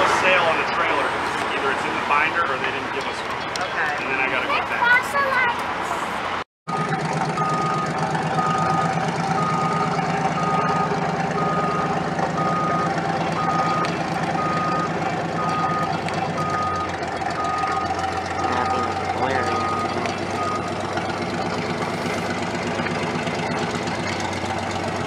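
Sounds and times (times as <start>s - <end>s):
fire truck engine running: 6.0s - 25.0s
backup alarm beeping: 6.7s - 20.8s.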